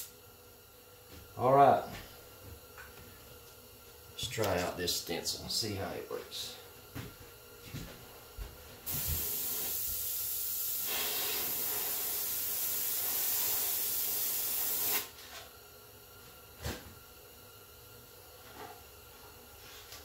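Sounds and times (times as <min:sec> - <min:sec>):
airbrush spraying hiss: 0:08.9 - 0:15.1.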